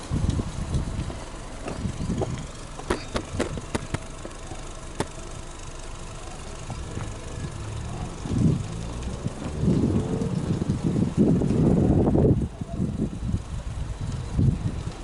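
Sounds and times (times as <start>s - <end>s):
car engine idling at exhaust: 0.0s - 15.0s
sharp clicks: 2.3s - 5.2s.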